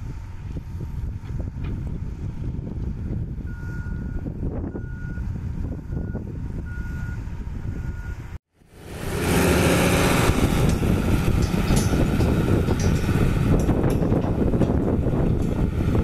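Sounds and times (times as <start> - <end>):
diesel engine running: 0.0 - 16.0
reversing alarm beeping: 3.0 - 5.3, 5.9 - 7.2, 7.8 - 8.3
even rushing noise: 8.7 - 16.0.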